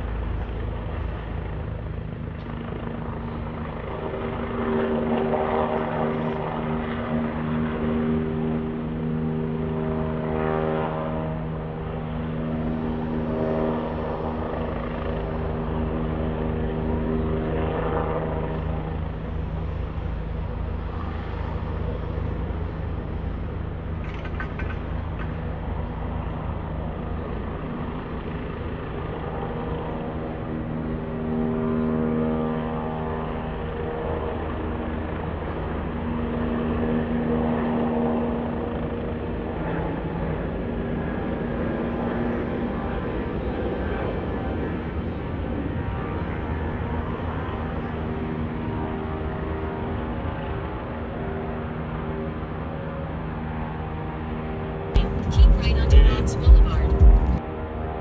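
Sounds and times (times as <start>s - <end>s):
vehicle low rumble: 18.4s - 27.6s, 55.0s - 57.4s
droning hum: 46.8s - 58.0s.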